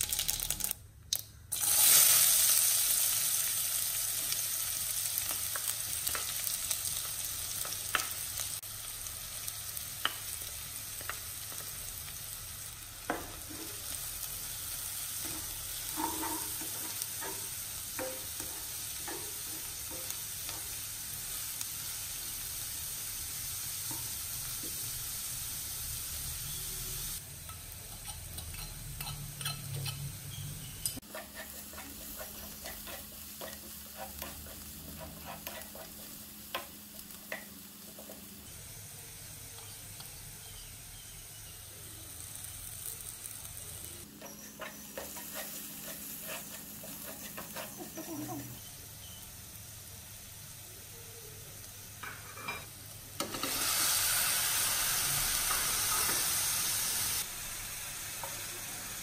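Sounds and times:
onions sizzling in oil: 0.0 - 0.8, 1.5 - 59.0
spatula scraping and tapping pan: 15.2 - 20.8, 27.5 - 30.1, 30.7 - 38.3, 44.2 - 48.6.

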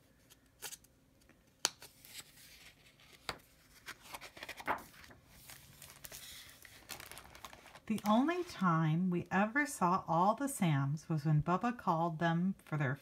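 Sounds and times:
paper rustling: 1.8 - 8.7.

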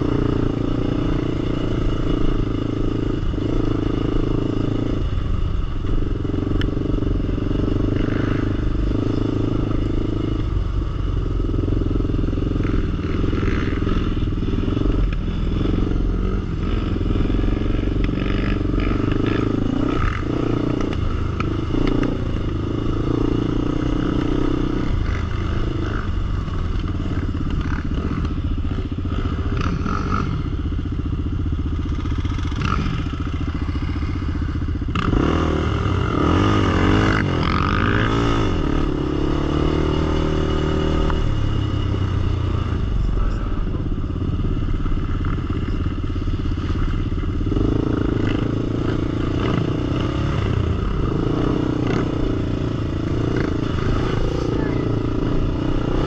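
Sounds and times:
quad engine revving: 34.9 - 44.0, 46.7 - 56.0.

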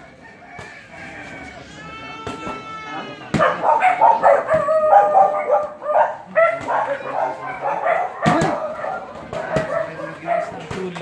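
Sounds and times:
dogs barking and yelping: 3.3 - 10.8.

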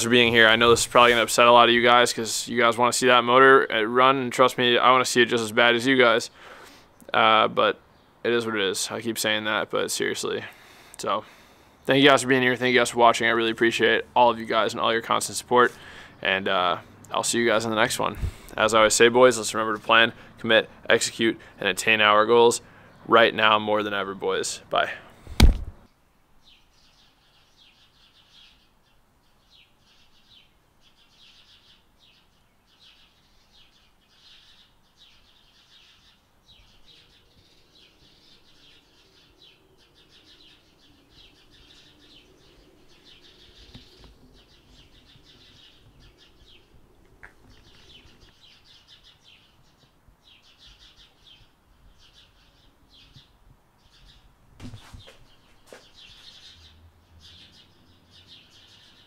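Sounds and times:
birds twittering: 0.0 - 59.0
sharp knock: 25.4 - 25.8.

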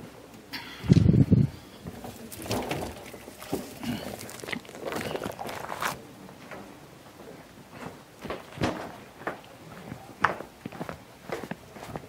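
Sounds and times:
footsteps on tiled floor: 7.2 - 12.0.

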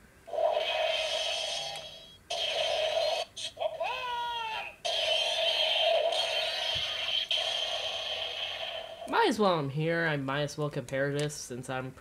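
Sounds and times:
buzzy electronic toy tone: 0.3 - 3.8
electronic pitched cry sweeping: 0.3 - 9.0.

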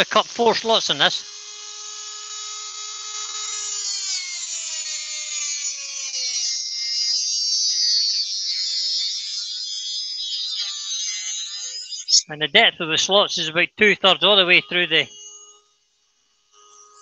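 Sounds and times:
rotary tool whine: 0.0 - 12.3, 15.1 - 17.0
rasping hiss of cutting wood: 0.3 - 6.8.

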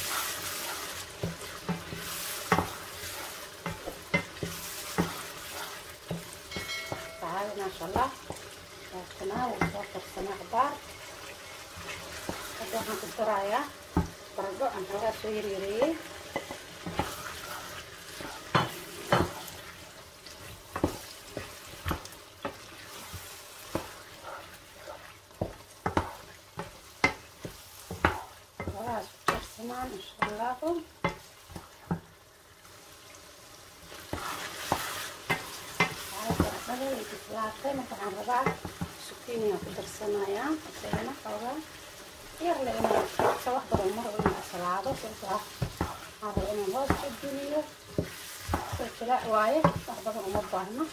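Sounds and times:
wooden spoon scraping pot: 0.0 - 13.3, 14.0 - 19.7, 34.0 - 41.5, 42.4 - 50.9
sauce sizzling: 0.0 - 50.9.

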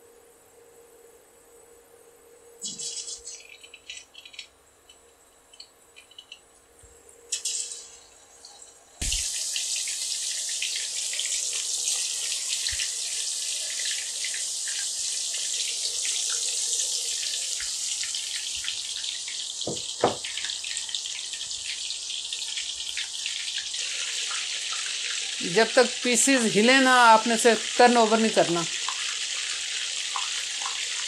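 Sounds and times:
fish deep-frying in hot oil: 7.3 - 31.0
short knocks: 19.7 - 20.3.

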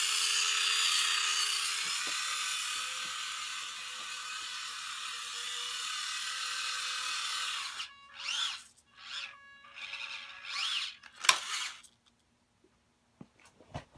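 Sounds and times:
small electric motor whirring: 0.0 - 11.9.

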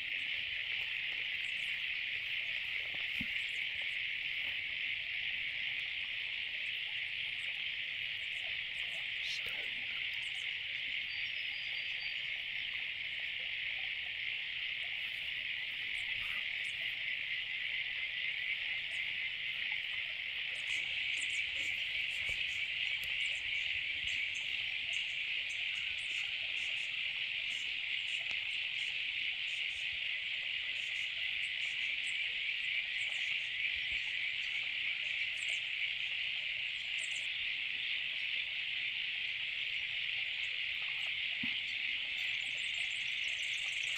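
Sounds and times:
insect chorus trilling: 0.0 - 43.9.

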